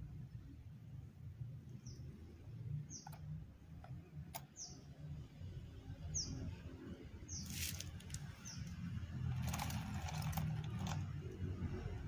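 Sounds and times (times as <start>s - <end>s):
small bird chirping: 1.7s - 5.0s, 6.0s - 6.6s, 7.2s - 11.0s
rustle: 7.4s - 8.2s.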